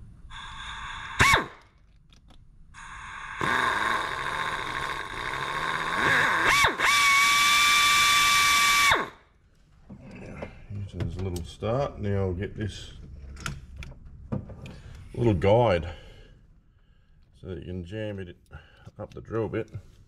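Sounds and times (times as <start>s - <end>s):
air drill hissing and whining: 0.3s - 1.6s, 2.8s - 9.2s.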